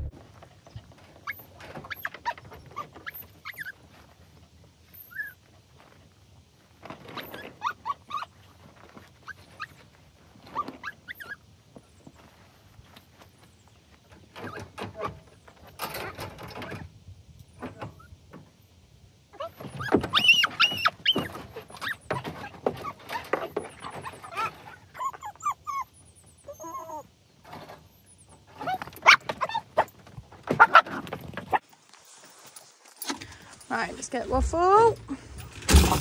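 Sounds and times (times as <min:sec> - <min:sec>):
dogs whining and yelping: 0:01.2 - 0:03.8, 0:04.9 - 0:05.4, 0:07.1 - 0:08.5, 0:09.2 - 0:11.5, 0:19.3 - 0:27.2, 0:27.8 - 0:31.6
crate doors knocking and rattling: 0:35.4 - 0:36.0.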